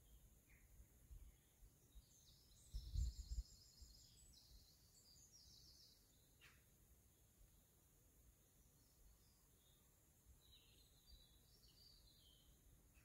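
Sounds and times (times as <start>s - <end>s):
wind rumble on microphone: 2.5s - 4.2s.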